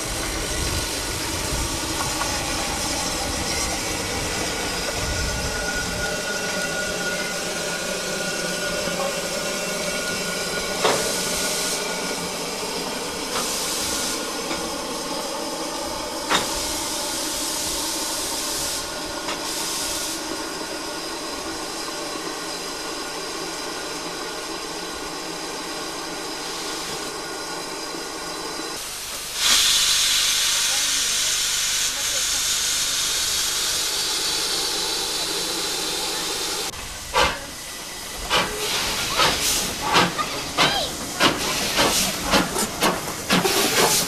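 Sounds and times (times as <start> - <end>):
steam locomotive hissing: 0.0 - 44.0.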